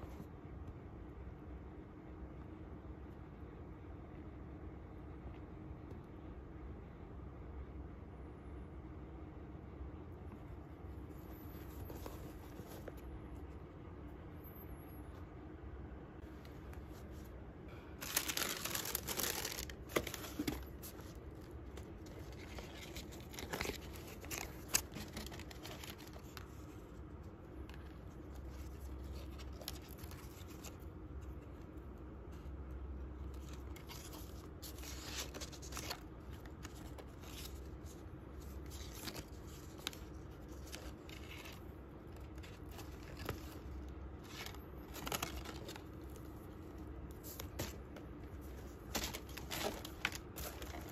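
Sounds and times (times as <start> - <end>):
tissue paper rustling in a box: 18.0 - 26.6, 48.4 - 50.9.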